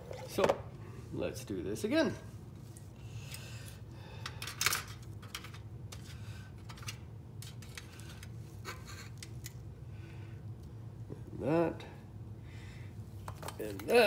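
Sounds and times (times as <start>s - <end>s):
low steady hum: 0.0s - 14.0s
plastic parts clattering on metal tray: 4.3s - 6.0s.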